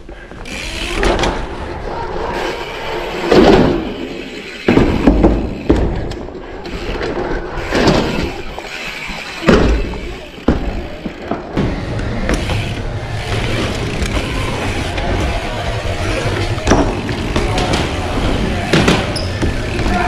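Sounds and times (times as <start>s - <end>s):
bike tyres rumbling on ramps: 0.0s - 20.0s
bike landing thuds: 4.7s - 6.3s.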